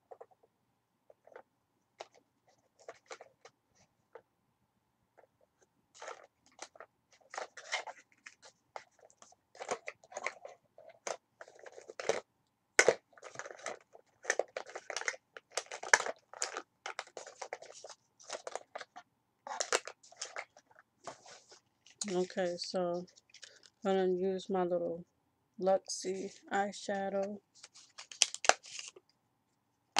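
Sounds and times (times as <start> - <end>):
cosmetic containers clicking and rustling: 1.1 - 1.4, 2.0 - 3.6, 6.0 - 23.9, 26.0 - 29.0.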